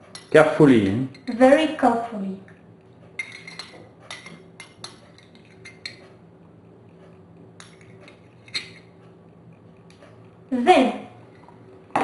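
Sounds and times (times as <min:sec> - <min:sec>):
utensils and dishes clinking: 0:00.0 - 0:01.4, 0:03.0 - 0:06.2, 0:06.9 - 0:09.0.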